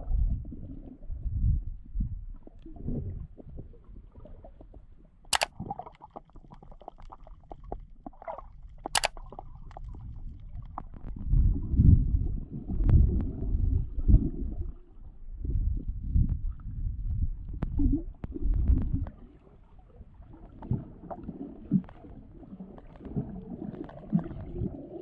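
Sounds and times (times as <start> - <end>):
underwater rumble of moving water: 0.0 - 25.0
small clicks: 5.3 - 5.5, 8.8 - 9.9
sharp cracks: 9.0 - 9.2.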